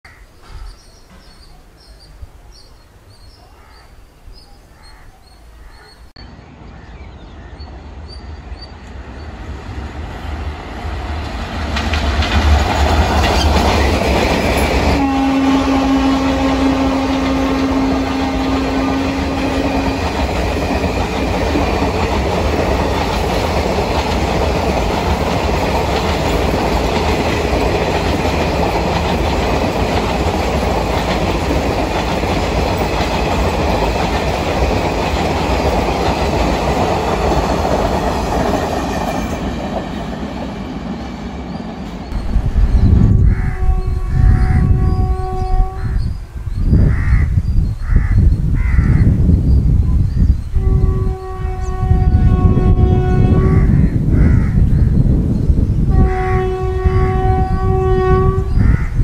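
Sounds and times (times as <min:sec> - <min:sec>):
train wheels rumbling and clattering: 0:00.4 - 0:02.0, 0:08.8 - 0:45.1
locomotive horn: 0:14.9 - 0:20.2, 0:43.2 - 0:46.1, 0:50.6 - 0:53.8, 0:55.9 - 0:58.6.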